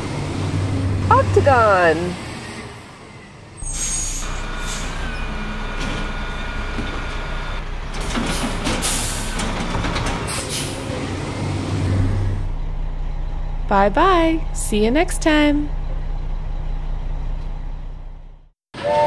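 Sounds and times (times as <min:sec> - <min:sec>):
hydraulic whine: 0:00.0 - 0:18.5
garbage truck diesel engine running: 0:00.0 - 0:18.6
load clanking and banging into hopper: 0:05.2 - 0:10.8.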